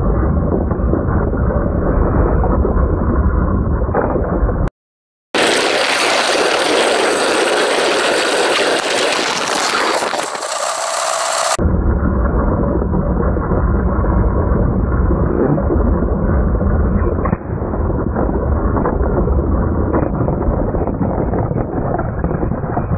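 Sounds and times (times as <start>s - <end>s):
faint crackles: 5.4s - 11.6s.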